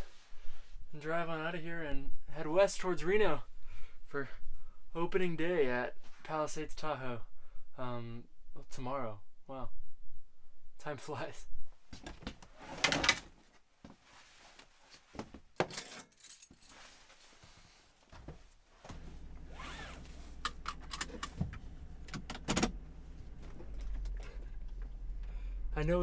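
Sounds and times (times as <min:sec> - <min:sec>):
keys jangling: 0:15.7 - 0:16.9
seatbelt buckled: 0:18.9 - 0:22.8
van engine idling: 0:18.9 - 0:26.0.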